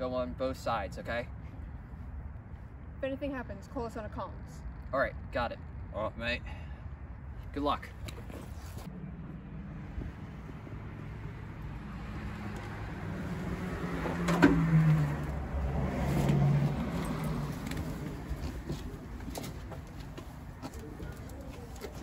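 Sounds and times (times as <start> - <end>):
vehicle passing: 8.4 - 22.0.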